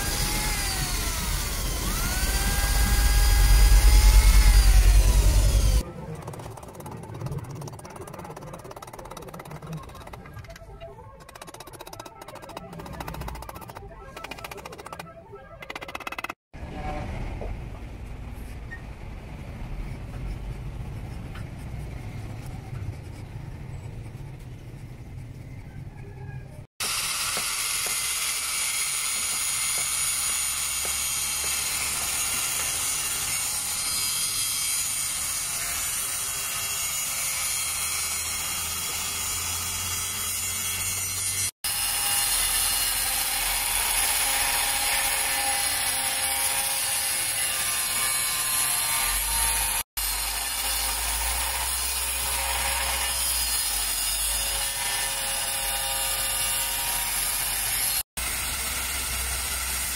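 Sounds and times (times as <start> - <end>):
angle grinder grinding steel: 0.0 - 10.6, 26.8 - 59.9.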